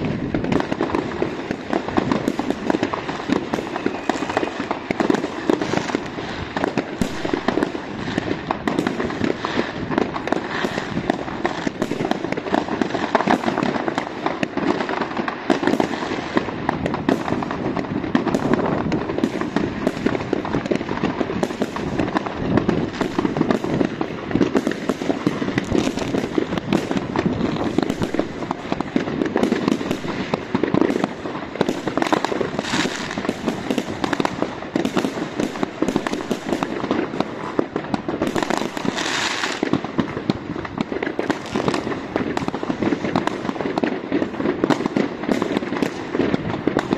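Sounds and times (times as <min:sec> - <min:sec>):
fireworks bangs and crackles: 0:00.0 - 0:46.9.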